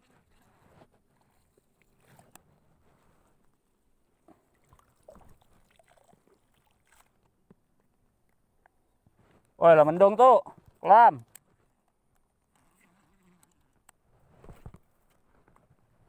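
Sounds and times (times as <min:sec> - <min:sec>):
lure swishing in water: 0:04.4 - 0:07.4.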